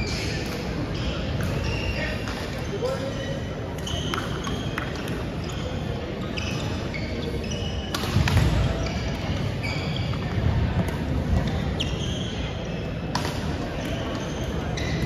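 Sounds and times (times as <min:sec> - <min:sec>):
sneakers squeaking: 0:00.0 - 0:15.0
rackets striking shuttlecock: 0:07.8 - 0:08.7, 0:13.1 - 0:15.0.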